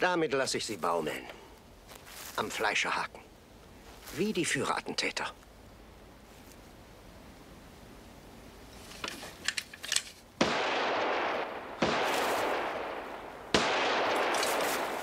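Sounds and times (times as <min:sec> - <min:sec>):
pistol shots: 0:10.4 - 0:15.0.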